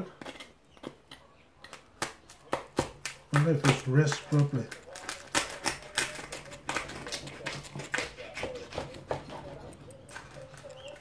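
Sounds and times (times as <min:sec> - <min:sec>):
knife crunching through pork crackling: 0:00.0 - 0:11.0.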